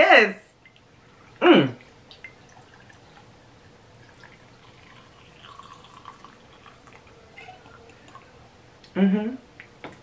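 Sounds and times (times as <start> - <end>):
liquid trickling into glass: 1.8 - 8.4.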